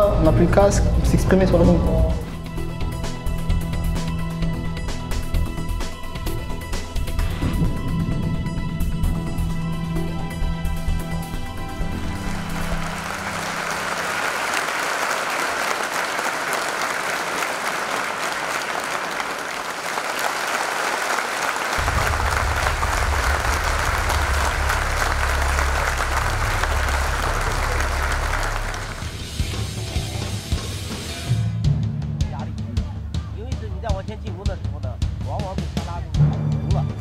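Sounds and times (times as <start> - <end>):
crowd applauding: 11.8 - 30.4
low rumble: 21.8 - 29.2.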